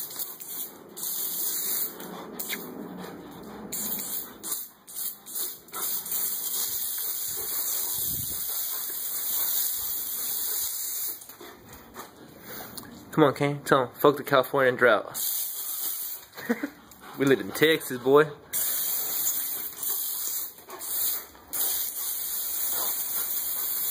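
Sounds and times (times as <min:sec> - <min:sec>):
water hissing from hose nozzle: 0:00.0 - 0:02.7, 0:03.7 - 0:11.3, 0:15.2 - 0:16.6, 0:18.5 - 0:23.9.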